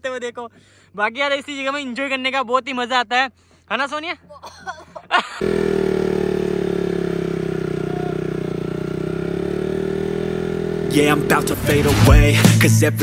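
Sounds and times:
motorcycle engine idling: 0:05.4 - 0:12.3
music with a beat: 0:11.1 - 0:13.0.

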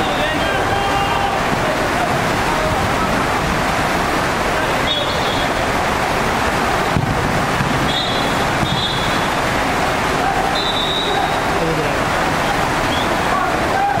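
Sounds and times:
high whistle blasts: 0:07.9 - 0:09.3, 0:10.5 - 0:11.5
echoing din of indoor football hall: 0:12.8 - 0:14.0.

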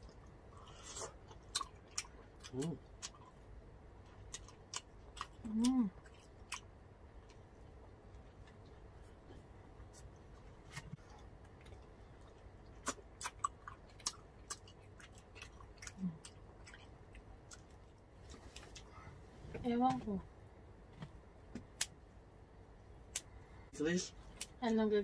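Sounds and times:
chewing food: 0:00.0 - 0:03.4, 0:04.1 - 0:10.0, 0:10.7 - 0:18.9.

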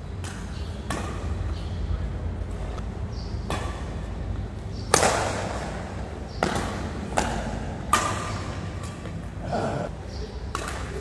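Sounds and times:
rackets hitting shuttlecock: 0:00.2 - 0:01.7, 0:03.3 - 0:09.3, 0:10.5 - 0:11.0.

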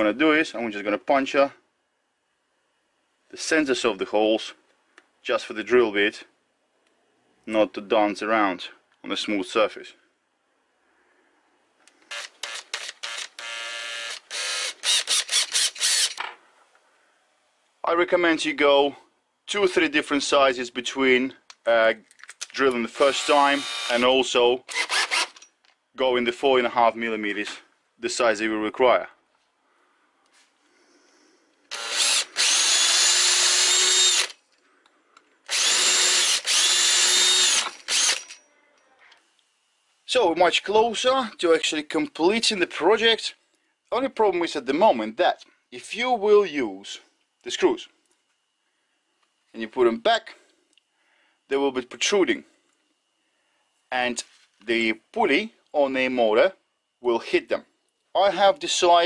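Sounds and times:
electric drill boring metal: 0:12.1 - 0:16.2, 0:22.9 - 0:24.0, 0:24.7 - 0:25.5, 0:31.7 - 0:34.4, 0:35.5 - 0:38.4.

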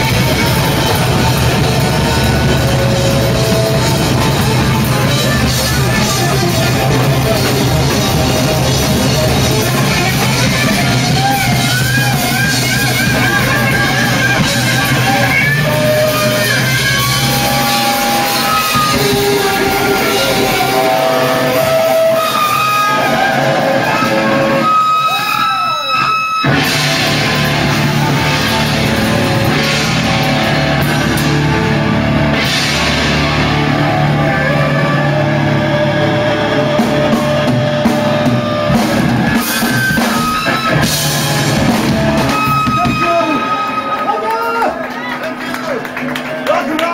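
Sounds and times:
drum kit with cymbals: 0:00.0 - 0:25.4, 0:26.0 - 0:43.6
distorted electric guitar: 0:00.0 - 0:46.0.

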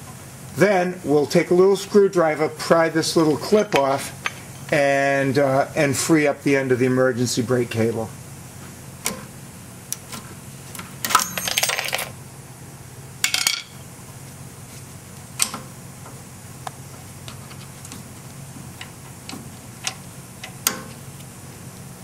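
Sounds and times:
metal clinking and rattling: 0:11.1 - 0:12.1.

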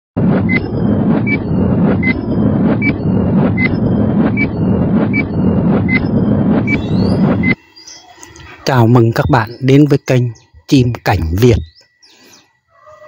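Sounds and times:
loud steady rumbling: 0:00.2 - 0:07.6
short high beeps: 0:00.4 - 0:07.6.

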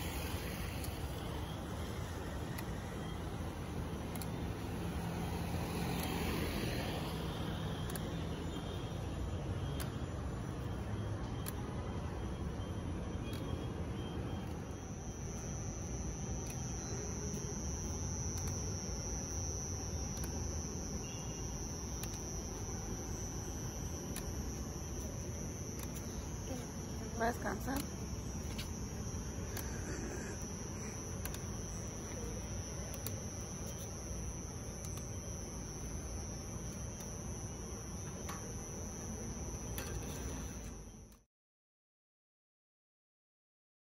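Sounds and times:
insects trilling: 0:00.0 - 0:41.2
constant high whine: 0:00.0 - 0:41.3.

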